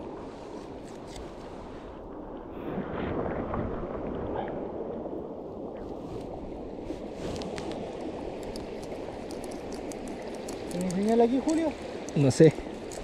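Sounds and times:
river water flowing: 0.0 - 13.0
faint light clicks: 8.4 - 12.2.

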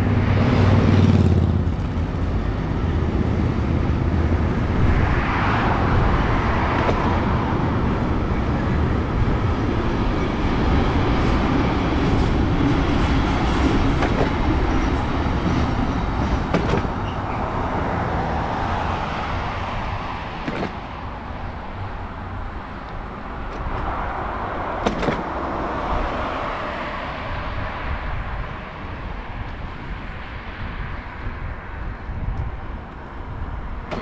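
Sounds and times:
freight train rumbling: 0.0 - 34.0.

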